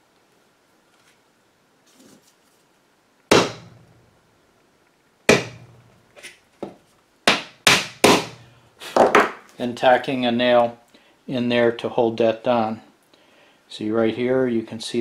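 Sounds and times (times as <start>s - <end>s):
hammer tapping a nail: 7.3s - 8.4s.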